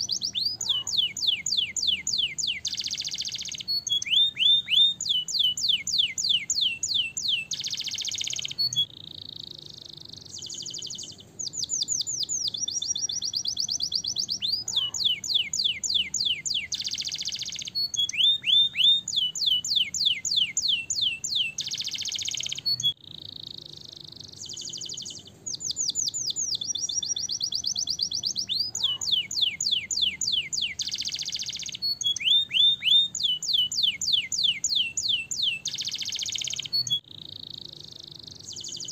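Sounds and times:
canary singing: 0.0 - 38.9.

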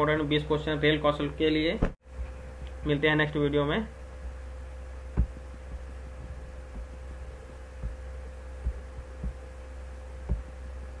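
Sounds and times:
low electrical hum: 0.0 - 11.0
soft low thumps: 4.0 - 11.0.

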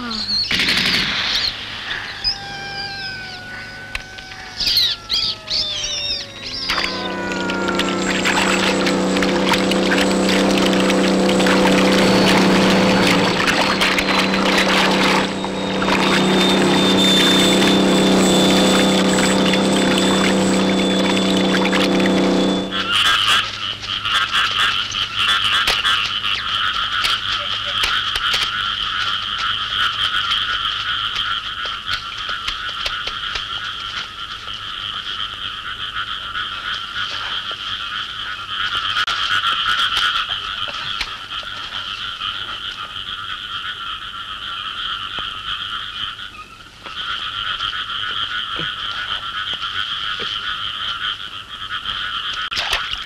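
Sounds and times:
faint low hum: 1.9 - 23.1
frogs croaking: 2.0 - 52.7.

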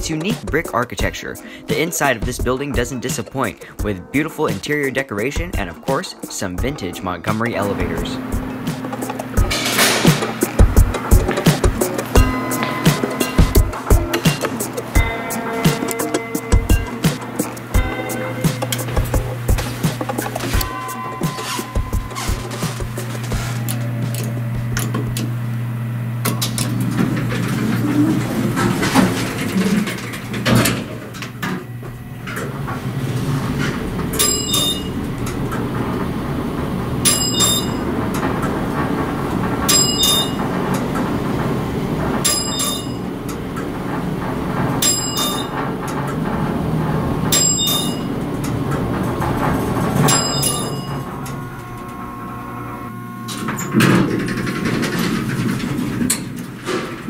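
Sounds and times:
elevator doors shutting knock: 0.0 - 57.0
elevator doors sliding open: 0.0 - 57.0
elevator running hum: 0.0 - 57.0
elevator chime dinging: 5.0 - 25.4, 31.5 - 56.1.

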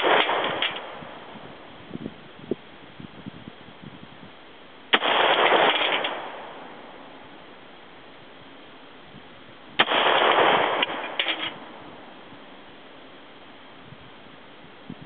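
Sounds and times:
rifle shots: 0.0 - 1.3, 4.9 - 7.3, 9.8 - 12.3.

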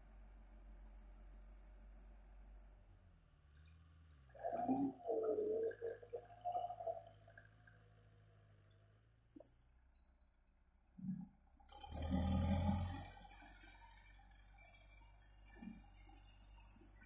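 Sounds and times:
dozer blade pushing soil: 11.7 - 13.2.

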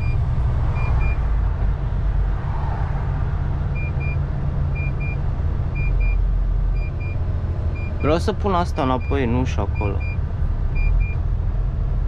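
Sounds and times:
lorry engine and road rumble: 0.0 - 12.0.

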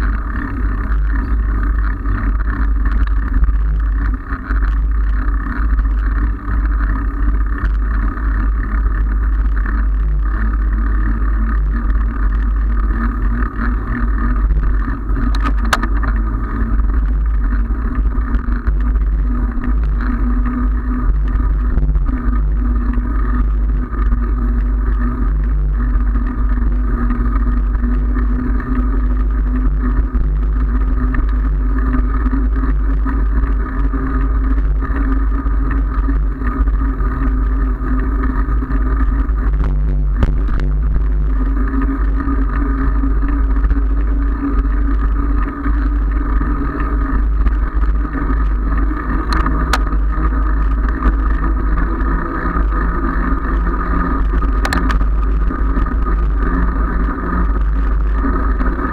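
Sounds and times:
bicycle tyres on asphalt: 0.0 - 58.9
wind buffeting microphone: 9.5 - 58.9
sharp click: 15.3 - 16.0, 54.6 - 55.0.

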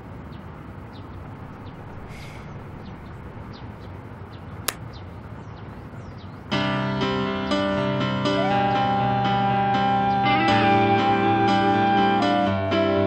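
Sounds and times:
steady background hiss: 0.0 - 6.0
faint birds chirping: 0.0 - 6.6
sharp click: 4.6 - 4.8.

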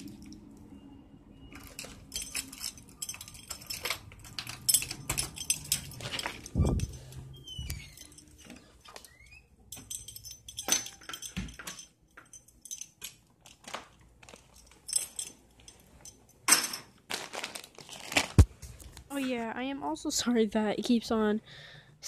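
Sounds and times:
keys jangling: 1.5 - 16.9
short squeaks: 6.5 - 9.6
snack bag crinkling: 17.0 - 18.5.

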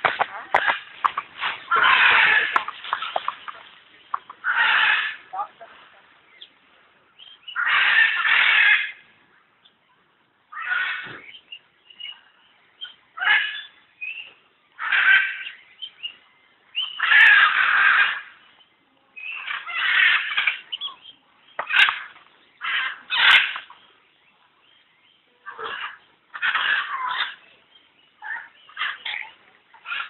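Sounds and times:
animal calling: 0.1 - 5.6, 25.4 - 27.6, 28.2 - 30.0.

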